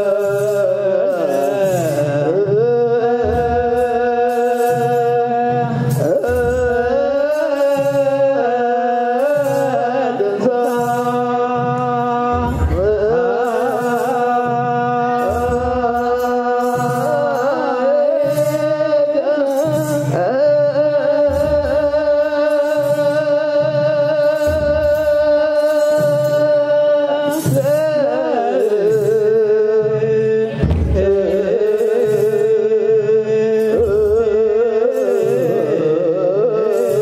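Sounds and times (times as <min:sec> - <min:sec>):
low drum beats: 0:09.2 - 0:17.6, 0:19.6 - 0:33.1.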